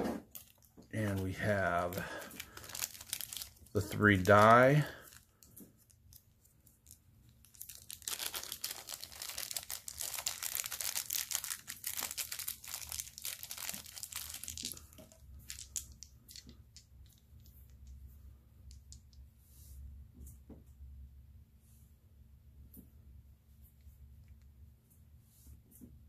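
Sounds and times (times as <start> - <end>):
plastic bag crinkling and tearing: 0.3 - 16.4.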